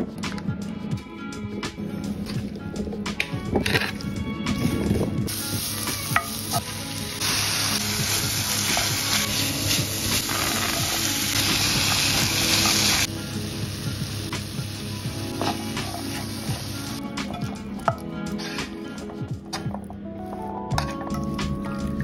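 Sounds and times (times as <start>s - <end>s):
vegetables sizzling in a pan: 5.3s - 17.0s.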